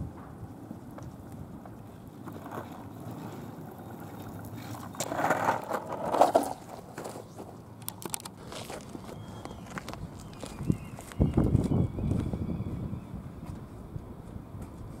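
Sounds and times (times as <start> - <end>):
skateboard wheels rolling on asphalt: 0.0 - 15.0
skateboard scraping and clacking: 0.8 - 10.1.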